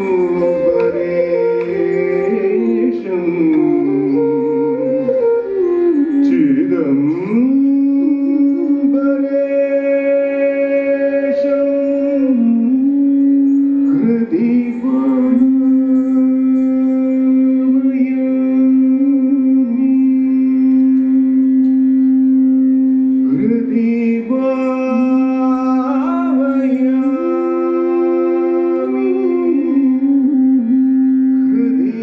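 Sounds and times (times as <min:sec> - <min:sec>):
devotional music with held notes: 0:00.0 - 0:32.0.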